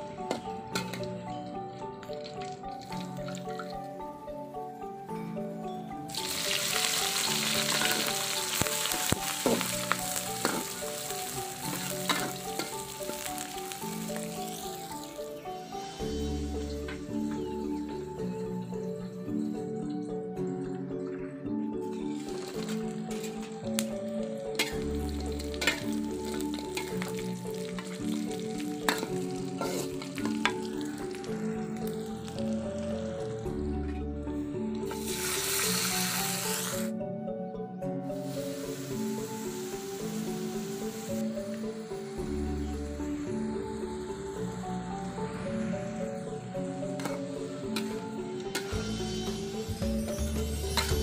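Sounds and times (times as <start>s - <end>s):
vegetables sizzling in hot oil: 6.1s - 16.3s, 22.1s - 23.9s, 24.6s - 32.5s, 34.9s - 36.9s, 38.1s - 41.3s, 47.8s - 51.0s
spatula scraping wok: 6.2s - 13.8s, 24.6s - 30.7s, 34.9s - 36.9s, 46.9s - 51.0s
metal spatula scraping a wok: 28.9s - 30.2s, 48.5s - 49.8s, 50.4s - 51.0s.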